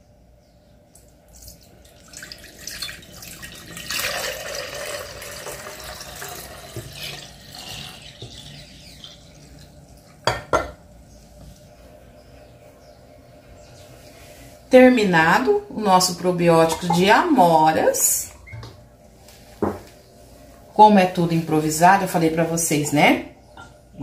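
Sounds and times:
tap water running into sink: 0:01.9 - 0:09.7.

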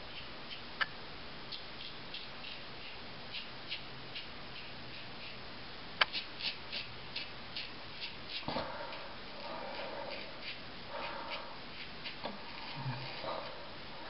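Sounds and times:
razor rasping through stubble: 0:01.8 - 0:05.4, 0:06.0 - 0:13.6.

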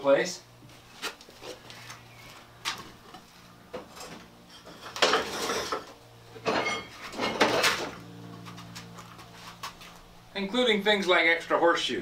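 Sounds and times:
metal objects clattering: 0:04.0 - 0:08.0
metallic ring: 0:06.4 - 0:07.6.

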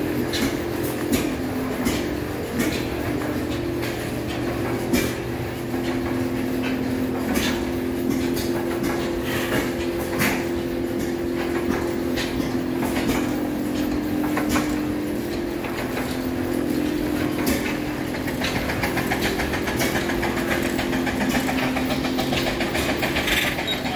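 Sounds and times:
steady mechanical hum: 0:00.0 - 0:23.9
fast ticking clatter: 0:18.6 - 0:23.9.

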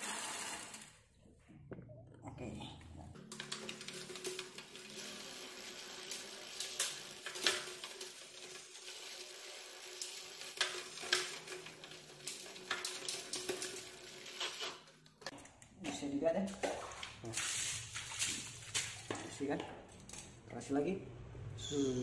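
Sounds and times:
bike chain crackly hiss: 0:03.9 - 0:12.7.

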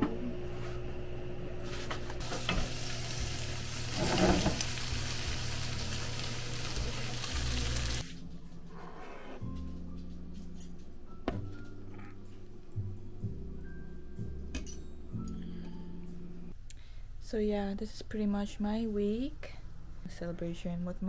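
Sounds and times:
food sizzling in a pan: 0:02.2 - 0:08.0.

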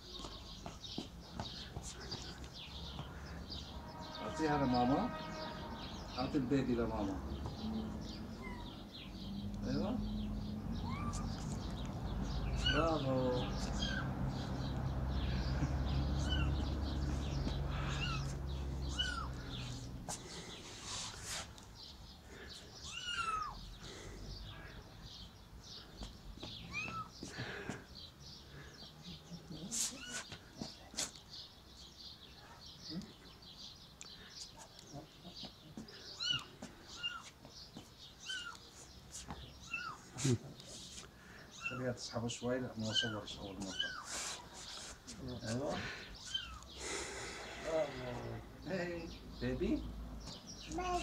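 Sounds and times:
cat meowing: 0:08.3 - 0:08.8, 0:10.9 - 0:11.5, 0:12.5 - 0:13.0, 0:13.8 - 0:14.0, 0:16.2 - 0:16.6, 0:17.8 - 0:19.4, 0:22.8 - 0:23.6, 0:26.7 - 0:27.1, 0:29.9 - 0:30.3, 0:36.2 - 0:37.3, 0:38.2 - 0:38.6, 0:39.6 - 0:40.0.

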